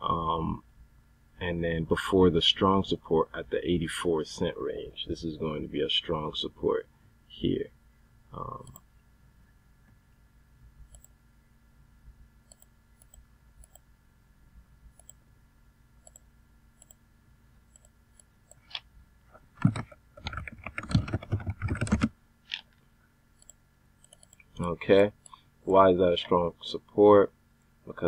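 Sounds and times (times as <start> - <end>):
typing on computer keyboard: 20.2 - 22.1, 23.4 - 24.4.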